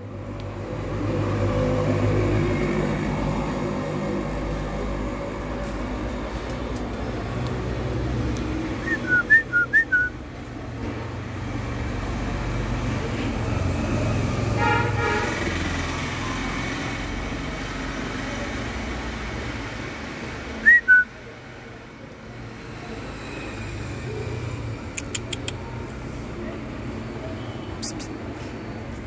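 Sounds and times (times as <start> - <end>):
short whistled chirps: 8.8 - 10.1, 20.6 - 21.1, 27.7 - 28.2.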